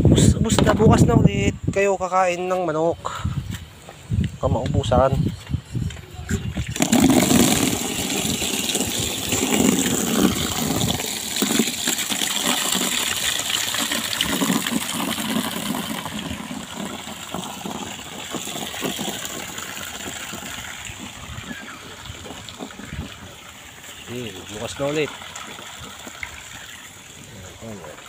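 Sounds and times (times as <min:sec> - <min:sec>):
water gushing from a hose into a basin: 0:06.4 - 0:28.0.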